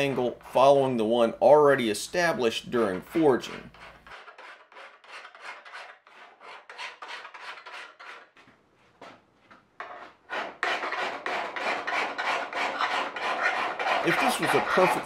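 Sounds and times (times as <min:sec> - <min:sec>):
file rasping on steel blade: 0:03.2 - 0:08.4, 0:09.8 - 0:15.0.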